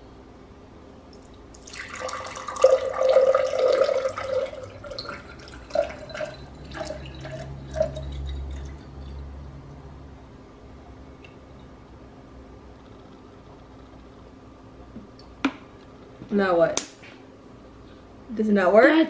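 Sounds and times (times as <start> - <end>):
water pouring into glass: 1.1 - 9.4.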